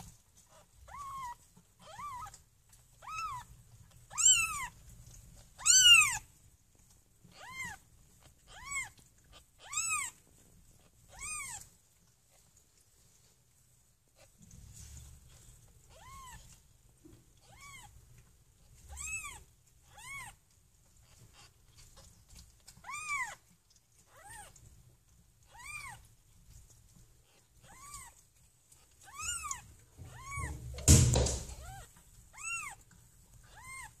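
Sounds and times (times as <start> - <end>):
loud knock: 30.6 - 31.6.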